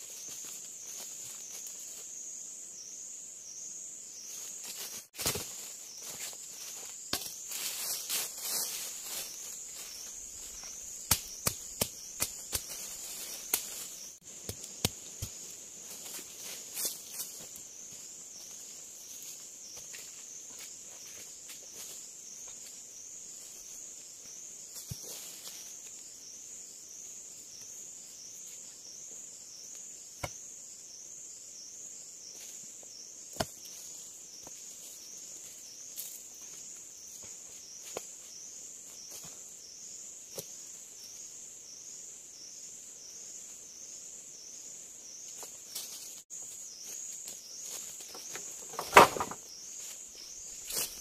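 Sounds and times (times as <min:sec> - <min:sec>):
loud thump with clatter: 0:48.7 - 0:49.4.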